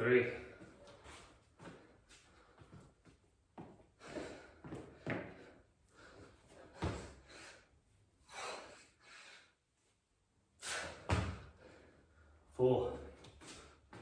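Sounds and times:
hard breathing: 3.8s - 9.7s.

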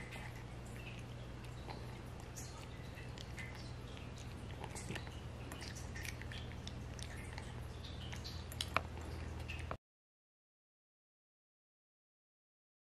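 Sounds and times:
cat crunching dry kibble: 0.0s - 9.8s
steady low hum: 0.0s - 9.8s.

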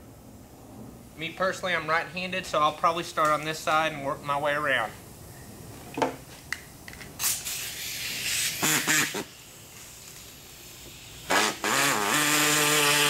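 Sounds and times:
pneumatic cutting tool whining: 7.2s - 9.5s, 10.8s - 13.0s.

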